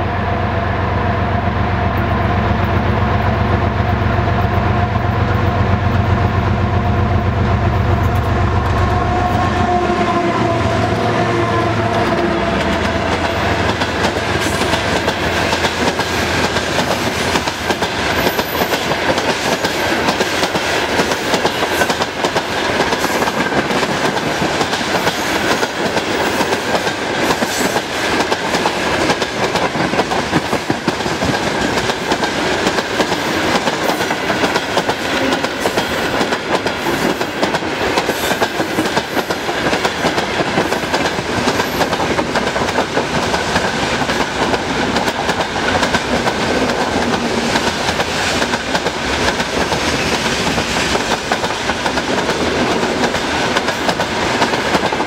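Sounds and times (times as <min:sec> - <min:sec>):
diesel locomotive engine: 0:00.0 - 0:55.0
freight train rumble: 0:00.0 - 0:55.0
train wheels clattering on rails: 0:10.4 - 0:55.0.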